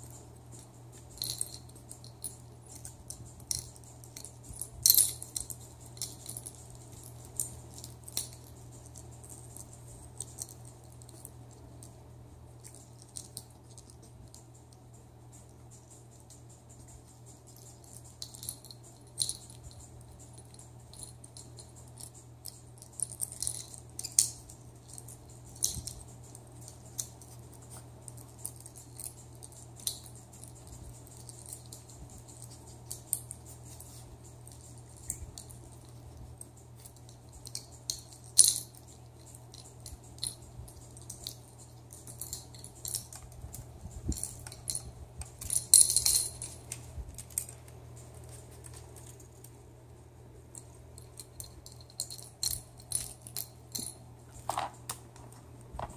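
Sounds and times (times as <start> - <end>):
plastic toys rattling and clicking: 12.6 - 49.6, 50.5 - 55.9.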